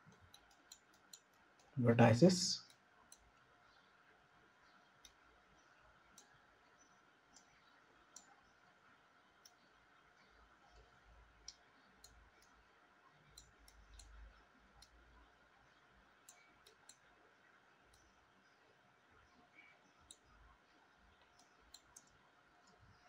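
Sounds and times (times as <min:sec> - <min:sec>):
computer mouse clicks: 0:00.0 - 0:01.8, 0:02.7 - 0:03.5, 0:05.0 - 0:05.3, 0:06.1 - 0:06.4, 0:07.3 - 0:08.4, 0:09.4 - 0:09.7, 0:10.3 - 0:12.6, 0:13.3 - 0:15.3, 0:16.2 - 0:17.1, 0:20.0 - 0:20.3, 0:21.1 - 0:22.8.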